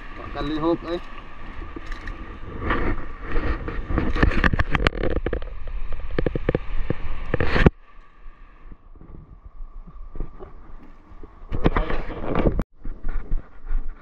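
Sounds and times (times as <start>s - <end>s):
wind rumbling on microphone: 0.0s - 14.0s.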